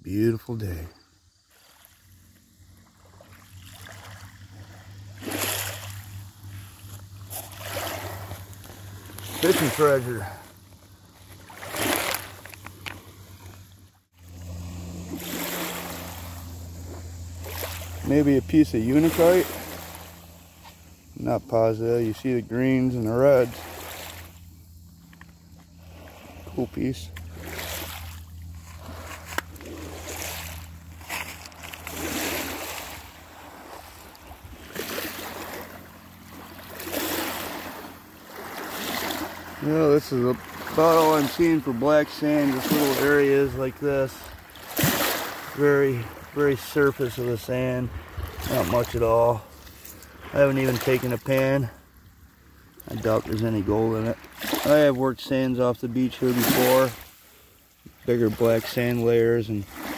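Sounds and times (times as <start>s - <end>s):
low steady hum: 0.0s - 59.9s
waves lapping on pebbles: 0.2s - 59.9s
wind rumble on microphone: 47.8s - 49.0s.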